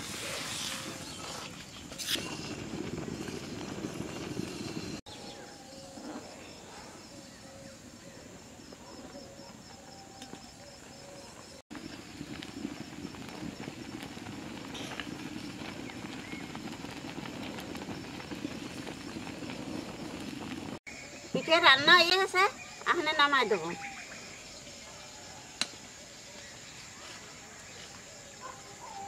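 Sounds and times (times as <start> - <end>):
thick liquid boiling and bubbling: 0.0 - 5.0, 11.7 - 20.9.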